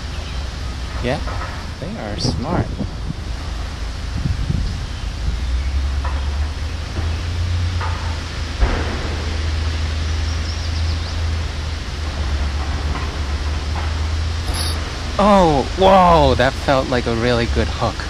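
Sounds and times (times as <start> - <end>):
wind buffeting microphone: 1.7 - 7.8.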